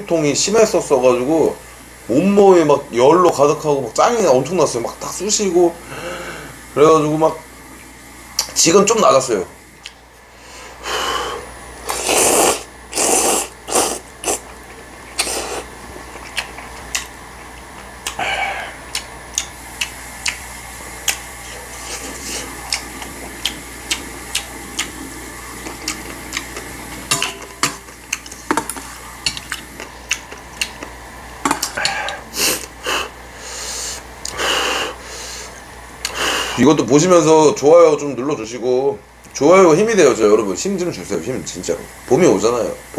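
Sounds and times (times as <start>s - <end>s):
noodles slurped: 11.8s - 20.4s
wet chewing: 11.9s - 28.4s, 29.1s - 31.0s.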